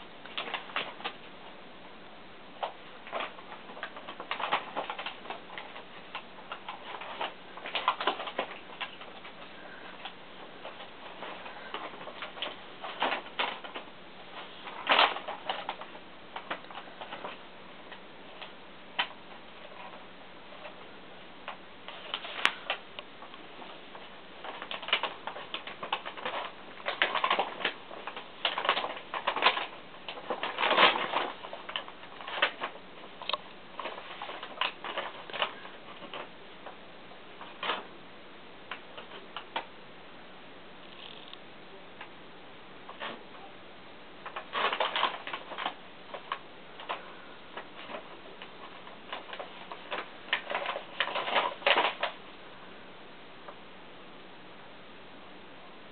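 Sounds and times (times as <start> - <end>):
paper bag rustling and crackling: 2.6 - 20.0, 21.5 - 37.9, 44.2 - 52.2.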